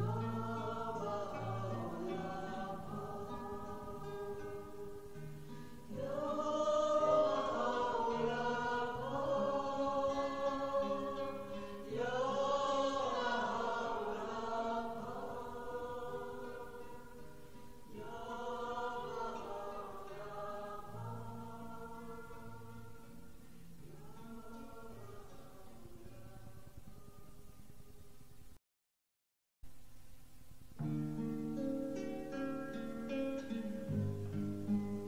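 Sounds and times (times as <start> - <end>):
choir chanting held notes: 0.0 - 27.1
steady sustained tone: 0.0 - 27.6.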